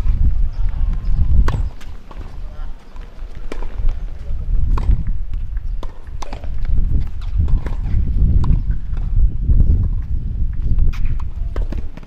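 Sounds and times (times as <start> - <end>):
tennis balls struck and bouncing: 1.4 - 2.4, 3.0 - 3.9, 4.6 - 12.0.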